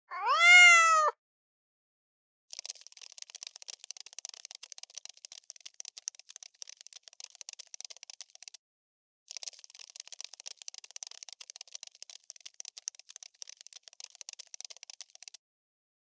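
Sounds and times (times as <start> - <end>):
cockroach legs scratchy clicking: 2.5 - 8.6, 9.3 - 15.4.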